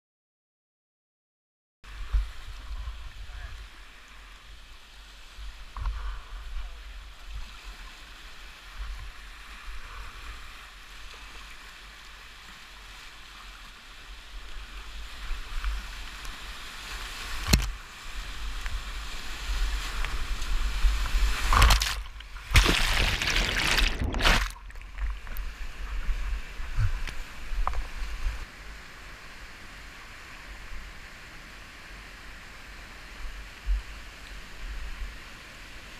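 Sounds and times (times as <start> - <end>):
whitewater rushing: 6.4 - 31.0.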